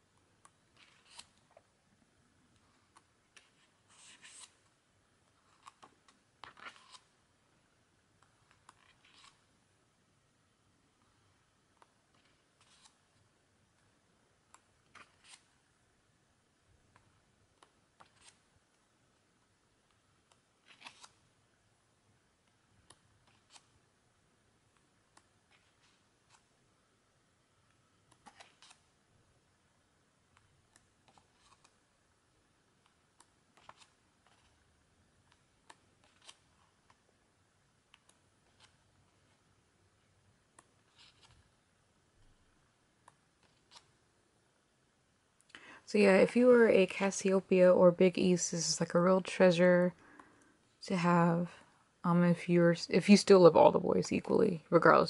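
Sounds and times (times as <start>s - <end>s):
book pages turning: 0.7s - 1.6s, 2.6s - 7.2s, 8.2s - 9.5s, 11.8s - 13.3s, 14.8s - 15.6s, 17.6s - 18.5s, 20.3s - 21.3s, 22.5s - 23.8s, 24.7s - 26.6s, 27.7s - 29.0s, 30.3s - 31.8s, 32.8s - 37.0s, 37.9s - 39.4s, 40.8s - 41.5s, 43.4s - 44.0s.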